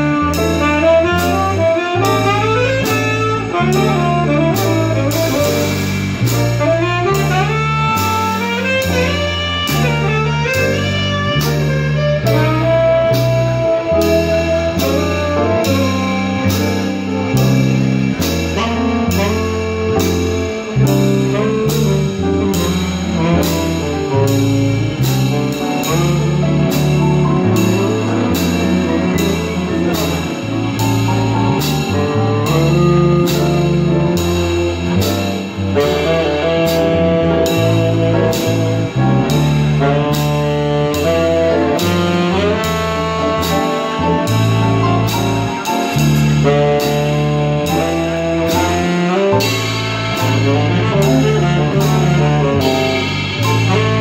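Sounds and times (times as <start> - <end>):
piano: 0.0 - 54.0
plucked upright bass: 0.0 - 54.0
saxophone melody: 0.0 - 54.0.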